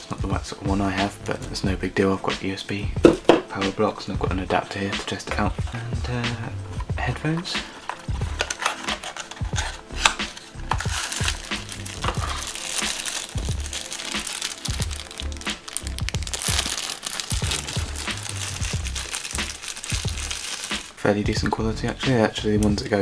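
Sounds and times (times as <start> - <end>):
background music with low beat: 0.0 - 23.0
plastic wrapping crinkling: 7.7 - 21.0.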